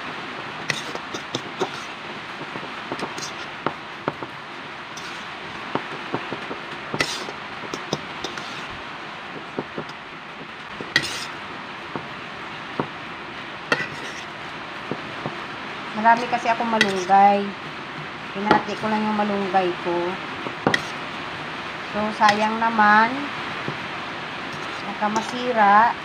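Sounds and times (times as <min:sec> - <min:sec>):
steady background hiss: 0:00.0 - 0:26.0
fork scraping and clinking in bowl: 0:00.7 - 0:02.0, 0:03.0 - 0:03.5, 0:05.0 - 0:05.3, 0:07.0 - 0:08.7, 0:11.0 - 0:11.4, 0:13.7 - 0:14.3, 0:20.7 - 0:21.0, 0:24.5 - 0:25.4.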